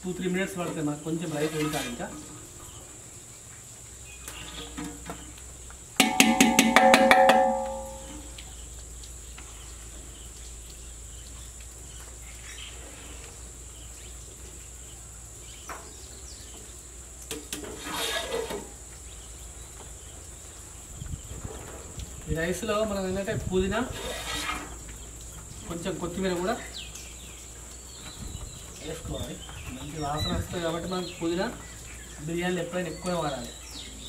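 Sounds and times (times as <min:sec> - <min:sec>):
metal ladle clanking on pot: 0:06.0 - 0:08.3.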